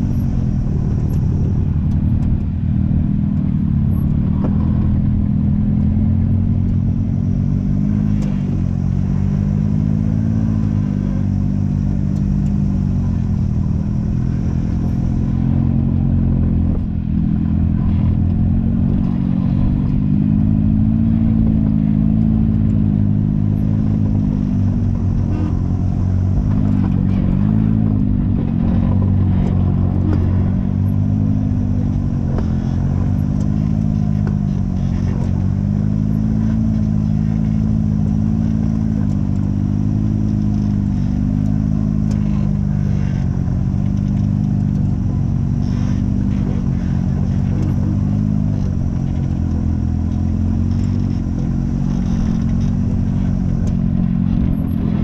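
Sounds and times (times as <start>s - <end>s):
vehicle engine running: 0.0s - 55.0s.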